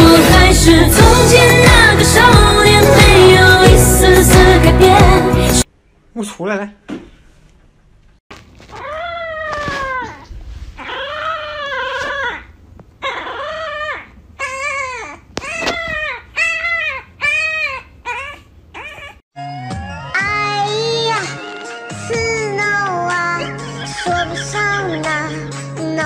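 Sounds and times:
puppy howling: 0:08.8 - 0:10.2, 0:10.8 - 0:19.2.

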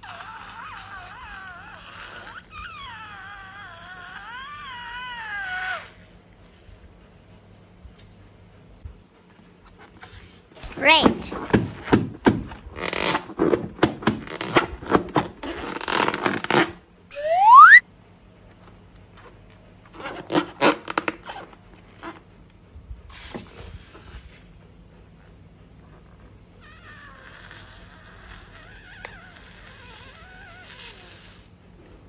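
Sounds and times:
rising whistle: 0:17.1 - 0:17.8.

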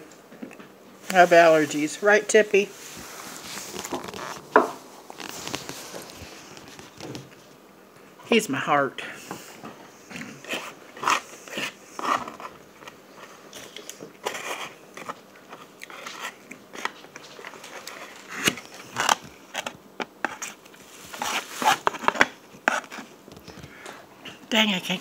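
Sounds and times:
plastic fork scraping styrofoam box: 0:02.9 - 0:07.2, 0:10.3 - 0:12.6, 0:13.3 - 0:23.6
biting and chewing food: 0:09.6 - 0:24.4.

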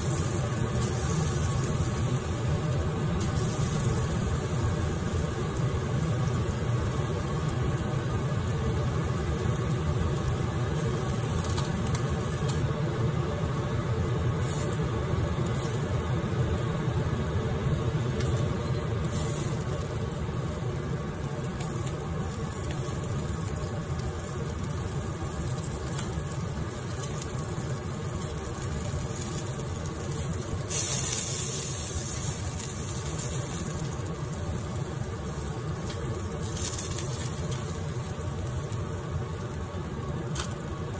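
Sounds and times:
gas flame rumble: 0:00.0 - 0:40.9
meat sizzling on grill: 0:00.0 - 0:40.9
loud hiss: 0:30.6 - 0:33.8.

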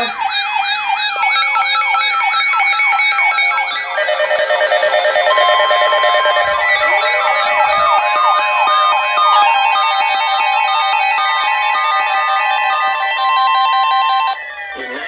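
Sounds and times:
falling yelp alert tone: 0:00.0 - 0:15.0
beeping tones: 0:01.2 - 0:15.0
high warble alert tone: 0:03.5 - 0:15.0
rising alert tone: 0:03.5 - 0:15.0
steady alert tone: 0:03.5 - 0:15.0.

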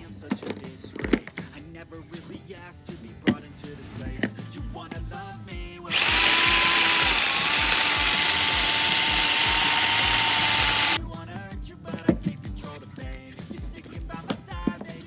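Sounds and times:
food chopper motor whining: 0:05.9 - 0:11.0.

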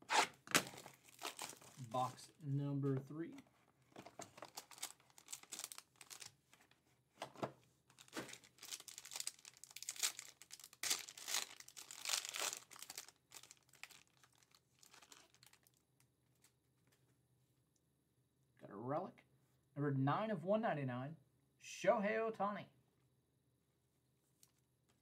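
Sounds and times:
foil wrapper crinkling and tearing: 0:00.4 - 0:02.1, 0:04.3 - 0:06.4, 0:07.9 - 0:15.8.

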